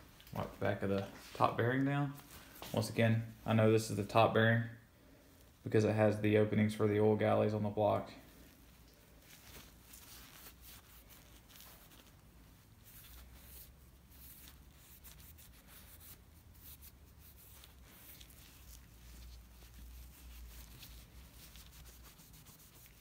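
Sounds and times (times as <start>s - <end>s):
paper towel rubbing and scratching: 9.1s - 23.0s.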